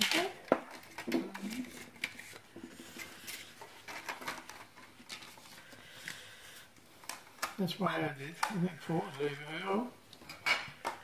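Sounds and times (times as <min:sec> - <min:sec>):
faint clicks and rustles: 0:00.0 - 0:07.6.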